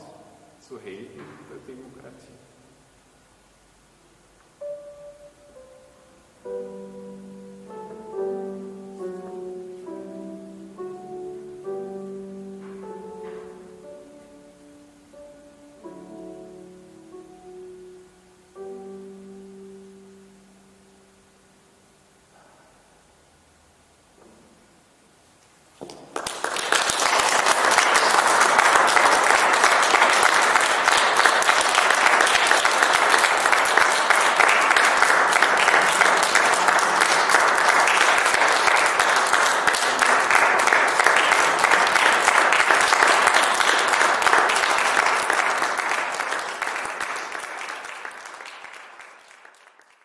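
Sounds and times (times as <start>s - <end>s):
audience applauding: 25.8s - 50.0s.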